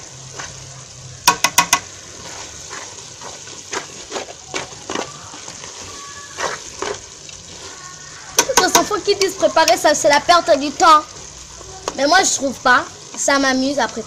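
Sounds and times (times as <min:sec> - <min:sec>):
faint sizzle: 0:00.0 - 0:14.0
spatula scraping pot: 0:02.1 - 0:09.8.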